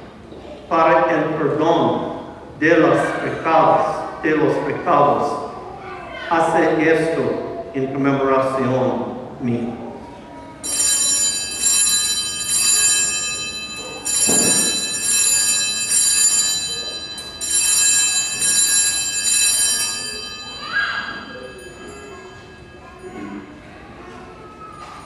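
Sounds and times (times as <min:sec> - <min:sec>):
altar bells shaken: 0:10.6 - 0:23.2.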